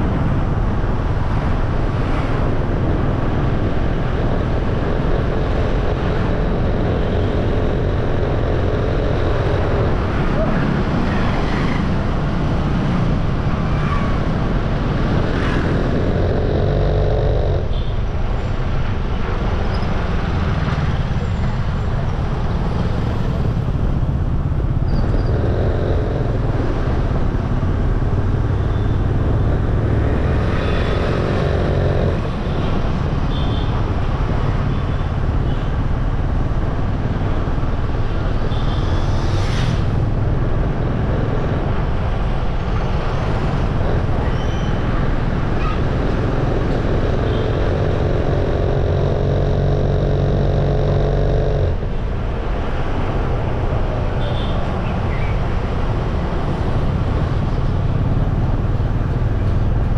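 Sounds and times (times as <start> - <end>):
motorbike engine running: 0.0 - 19.4, 21.6 - 54.5
road rumble: 0.0 - 59.9
wind noise: 0.0 - 59.9.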